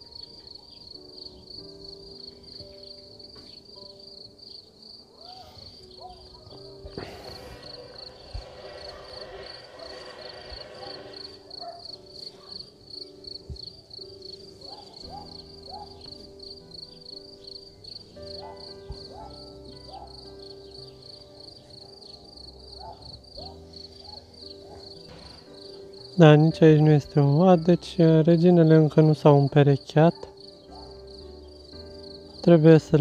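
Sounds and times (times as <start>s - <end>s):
high insect chirping: 0.0s - 33.0s
honeybees buzzing: 5.8s - 21.3s.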